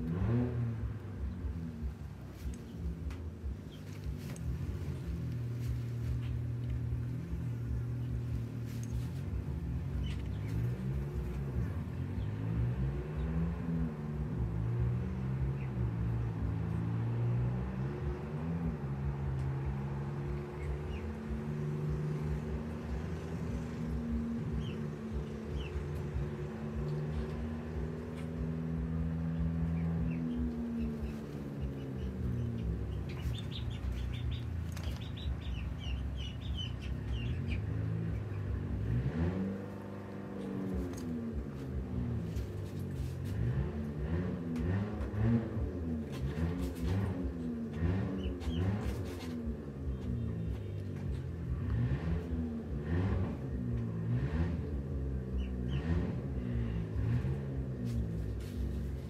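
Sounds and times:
engine humming: 0.0 - 59.0
high bird chirps: 29.7 - 37.7.

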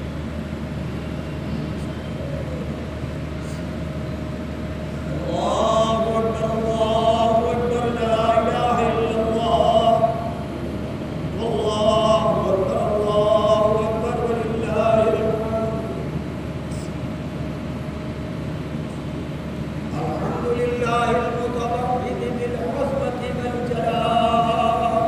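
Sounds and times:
steady low hum: 0.0 - 25.0
man chanting melodically: 5.0 - 10.5, 11.3 - 16.2, 19.9 - 25.0.

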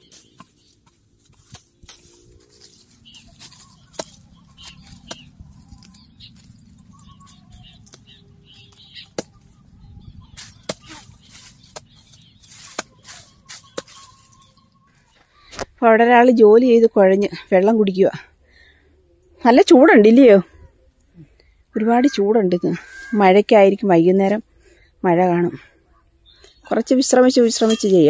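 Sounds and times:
hoe chopping and scraping soil: 0.0 - 9.6, 10.2 - 14.6.

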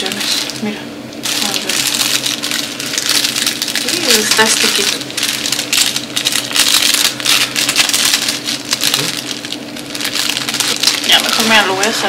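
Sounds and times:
plastic wrapper crinkling: 0.0 - 0.6, 1.2 - 12.0.

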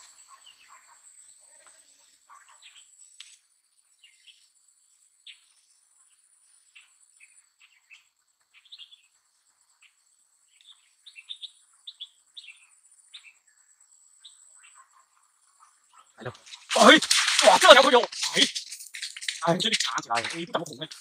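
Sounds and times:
small birds chirping: 0.0 - 21.0
high-pitched insect trill: 16.2 - 21.0.

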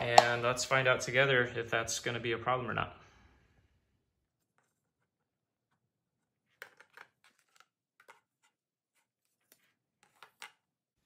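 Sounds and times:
wooden parts knocking: 0.0 - 0.5.

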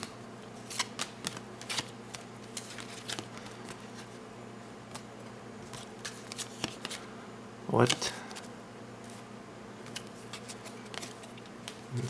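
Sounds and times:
cards flicking and sliding: 0.0 - 4.1, 4.9 - 7.0
steady low hum: 0.0 - 12.0.

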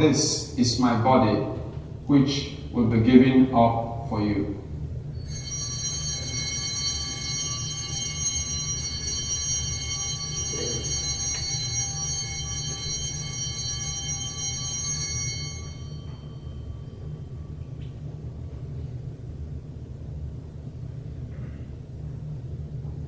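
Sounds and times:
low steady hum: 0.0 - 23.0
altar bells ringing: 5.2 - 17.8.

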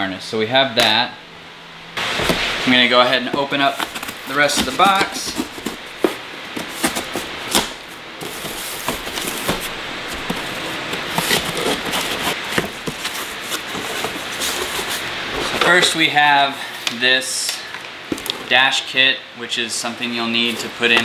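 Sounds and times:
cardboard scraping and rustling: 2.0 - 16.1, 20.3 - 21.0.

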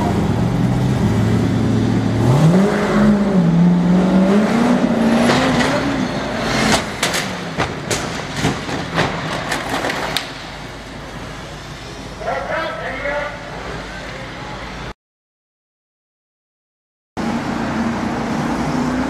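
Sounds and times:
car engine idling and revving: 0.0 - 9.7, 17.2 - 19.0
car crashing and clattering: 5.0 - 10.9.

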